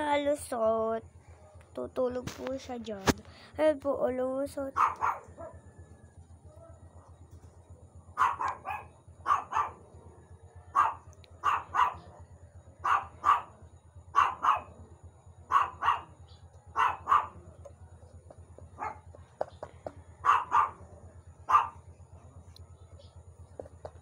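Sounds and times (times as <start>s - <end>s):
dog barking: 4.7s - 5.7s, 8.1s - 10.0s, 10.7s - 14.8s, 15.5s - 17.6s, 18.7s - 19.2s, 20.2s - 21.9s.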